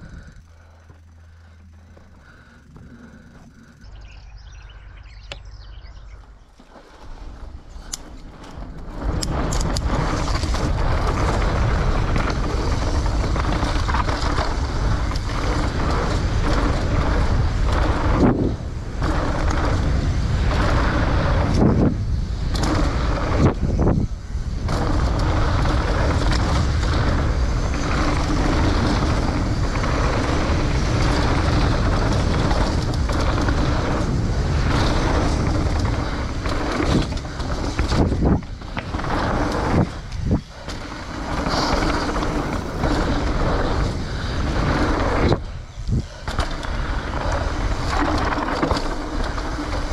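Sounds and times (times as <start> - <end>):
bike tyres rumbling and rattling: 0.0 - 49.9
wind rushing over microphone: 7.0 - 49.9.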